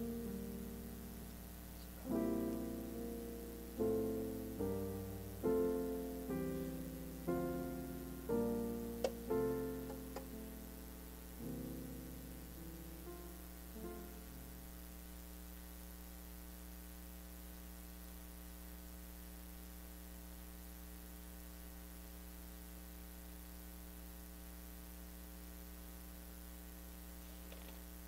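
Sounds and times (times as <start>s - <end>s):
music: 0.0s - 14.8s
electrical mains hum: 0.0s - 28.0s.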